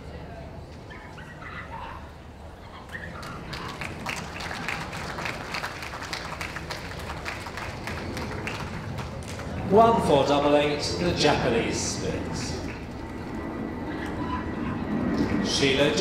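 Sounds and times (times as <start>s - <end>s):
spectators applauding: 2.8s - 10.1s.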